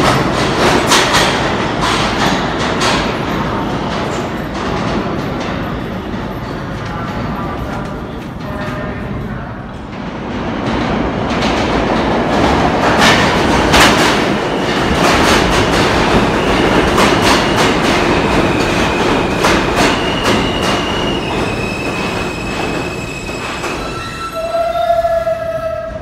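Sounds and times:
train wheels clattering over rail joints: 0.0 - 6.6
train rumble: 0.0 - 26.0.

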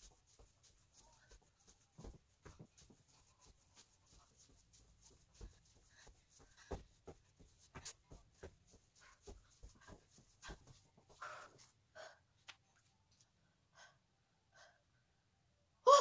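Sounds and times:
soft thumps on foam mat: 2.0 - 3.2
heavy panting breaths: 2.6 - 12.3, 13.7 - 14.9.

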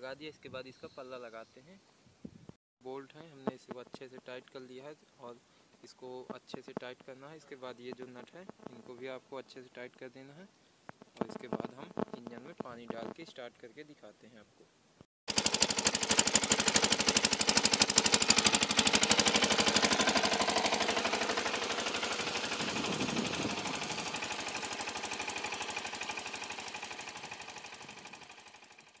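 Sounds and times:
diesel engine running: 15.3 - 29.0.

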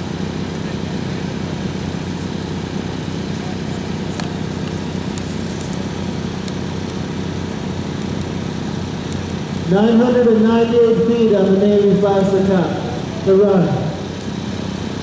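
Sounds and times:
small engine humming: 0.0 - 15.0.

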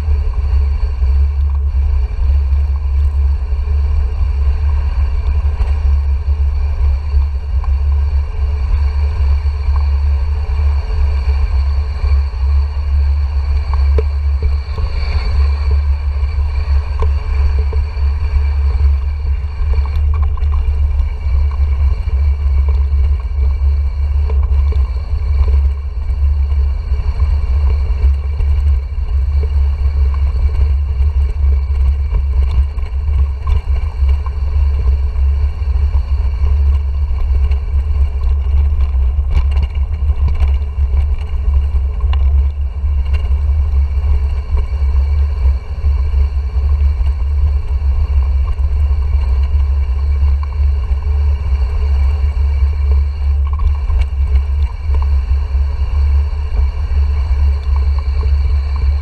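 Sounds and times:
bike rattling over paving stones: 28.0 - 44.7.

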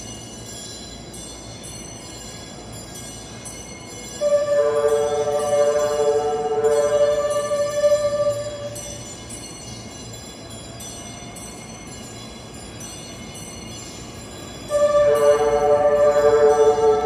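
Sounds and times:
train running slowly: 0.0 - 17.0
train musical horn: 4.2 - 9.0, 14.7 - 17.0.

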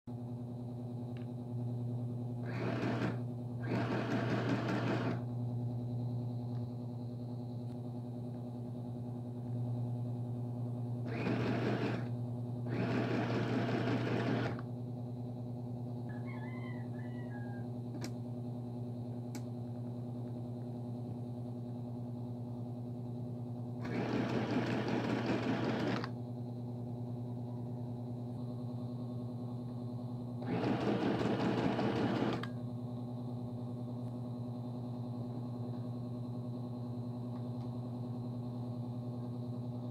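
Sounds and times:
steady low hum: 0.1 - 39.9
sewing machine stitching: 2.4 - 5.2, 11.1 - 12.1, 12.7 - 14.6, 23.8 - 26.1, 30.4 - 32.5.

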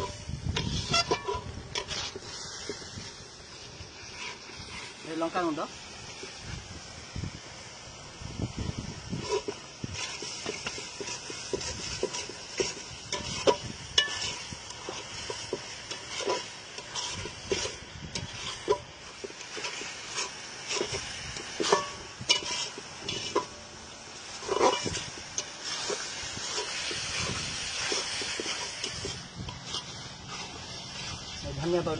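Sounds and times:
metal spatula scraping pan: 0.0 - 3.0, 9.2 - 23.6, 24.2 - 31.4.

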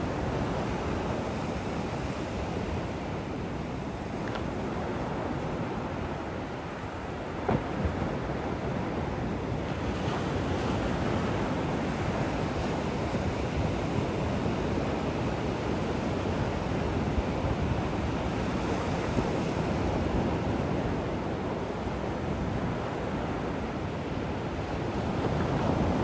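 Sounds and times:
ocean waves breaking on beach: 0.0 - 26.0.

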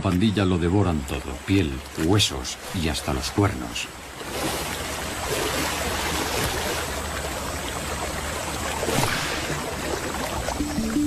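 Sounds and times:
river water splashing and churning: 0.0 - 11.0
sharp splash: 4.2 - 7.2, 8.6 - 10.6.

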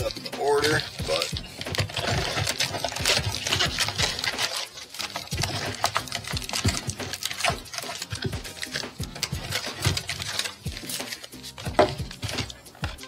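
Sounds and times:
card packs crinkling and rustling: 0.0 - 13.0.

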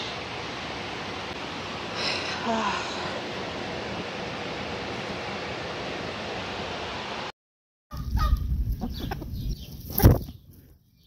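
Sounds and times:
chickens clucking: 8.1 - 10.2.

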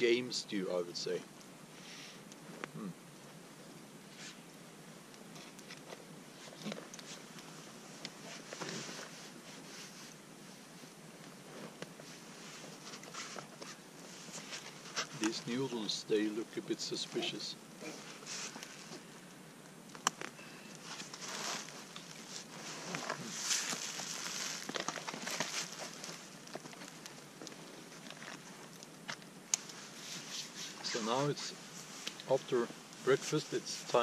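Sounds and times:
plastic pouch rustling: 20.8 - 27.0.

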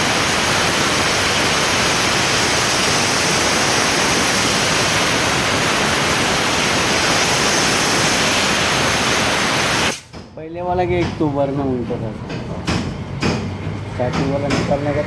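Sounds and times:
steam cleaner hissing: 0.0 - 10.1.

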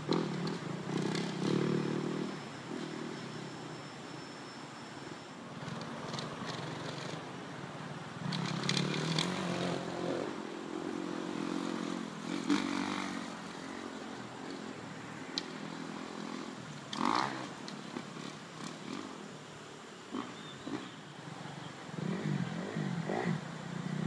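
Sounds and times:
distant dirt bike engine revving: 0.0 - 3.4, 8.2 - 19.3, 22.0 - 24.0.

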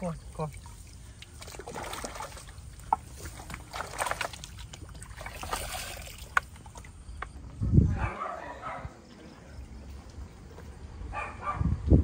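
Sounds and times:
hands splashing in shallow water: 0.5 - 7.0.

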